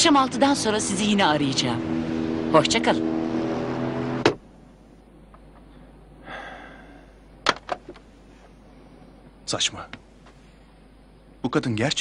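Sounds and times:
vehicle hum: 0.0 - 9.4
short breath: 5.7 - 7.3.

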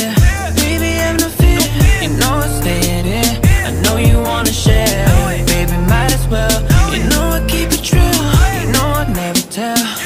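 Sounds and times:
hip hop song with steady beat: 0.0 - 10.0.

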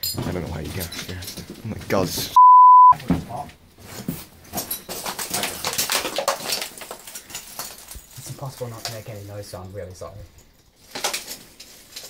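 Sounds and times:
rubble and glass bottles clattering: 0.0 - 2.3, 3.0 - 12.0
censor bleep: 2.4 - 3.0.

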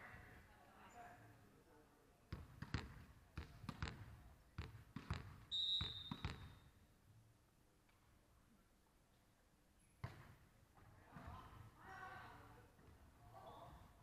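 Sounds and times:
volleyball bouncing on hardwood floor: 2.3 - 6.6
referee's whistle: 5.5 - 6.4.

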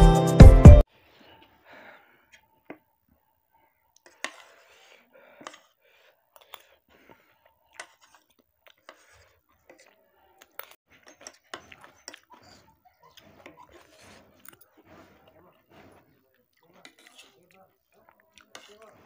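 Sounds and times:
cutlery scraping a plate: 4.0 - 5.7, 7.8 - 9.9, 10.6 - 16.1, 16.7 - 17.6, 18.4 - 19.0.

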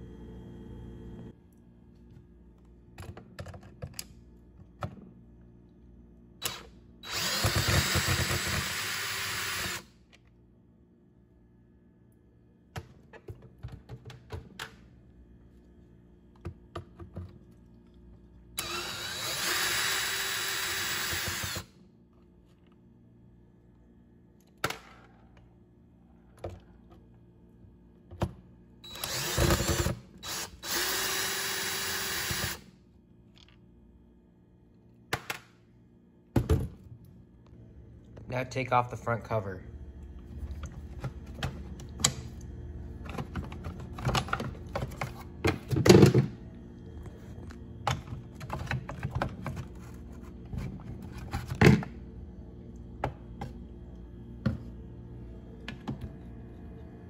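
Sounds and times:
power driver motor whirring: 6.4 - 9.9, 18.6 - 21.7, 28.9 - 32.6.

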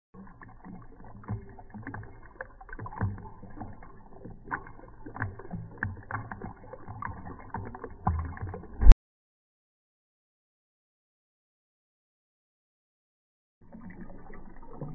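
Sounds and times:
cat lapping liquid: 0.2 - 8.6.

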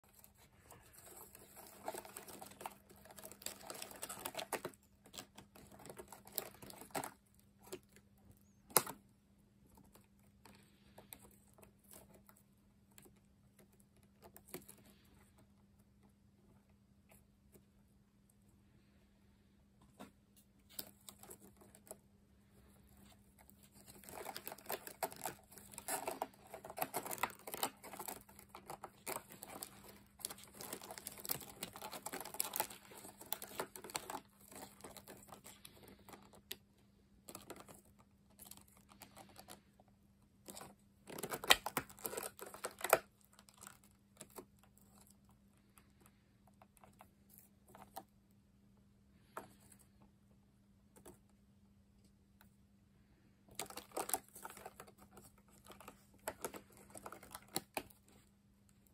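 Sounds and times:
beetles scratching and clicking: 0.0 - 9.0, 23.0 - 36.6, 40.5 - 45.1
faint low hum: 0.0 - 58.9.

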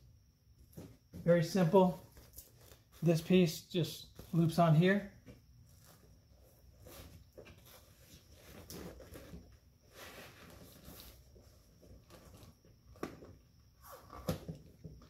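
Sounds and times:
vinyl rustling and scraping: 5.2 - 14.6.

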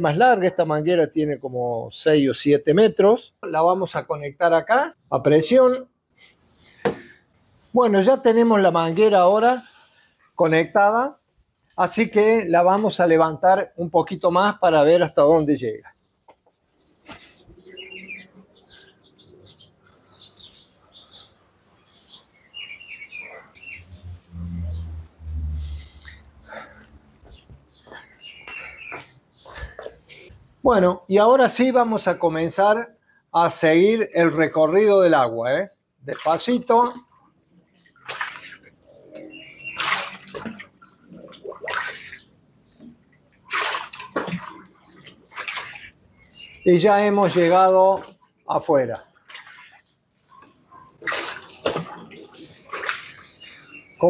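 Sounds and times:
small birds chirping: 15.3 - 30.9, 35.7 - 54.0
water splashing and sloshing: 36.1 - 54.0.

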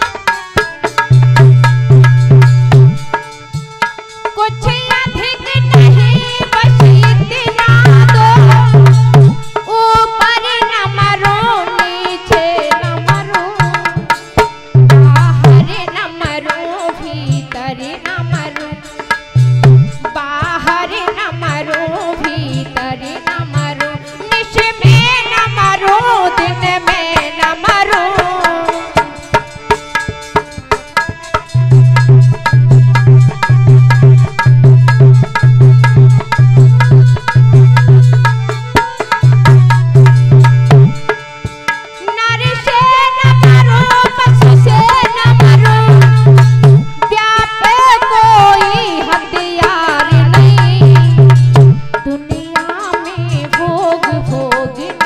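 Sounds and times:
hand drum beating: 0.0 - 4.0, 23.3 - 55.0
woman singing a devotional song: 4.3 - 29.5, 41.6 - 55.0.

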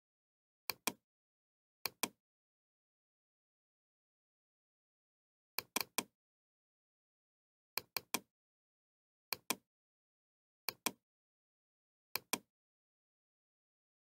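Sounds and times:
computer mouse clicking: 0.7 - 1.0, 1.9 - 2.2, 5.6 - 6.1, 7.8 - 8.3, 9.3 - 9.6, 10.7 - 11.0, 12.2 - 12.5.

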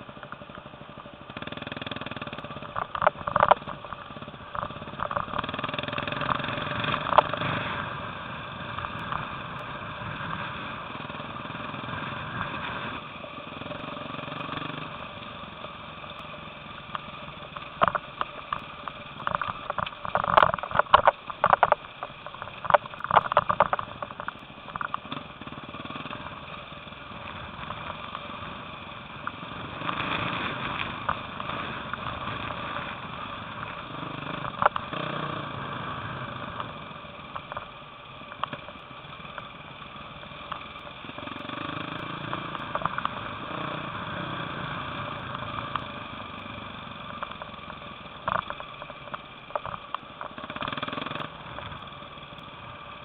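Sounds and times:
dirt bike engine revving: 1.3 - 2.7, 4.1 - 15.3, 25.0 - 36.6, 41.0 - 47.0, 50.4 - 51.8.

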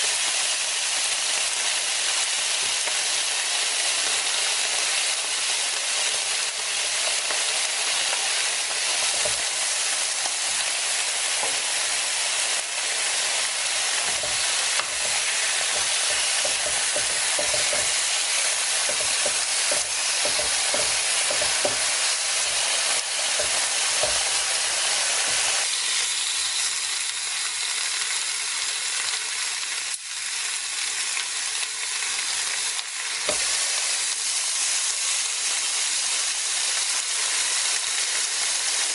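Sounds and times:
meat sizzling on grill plate: 0.0 - 38.9
fat crackling and popping: 13.6 - 24.6.

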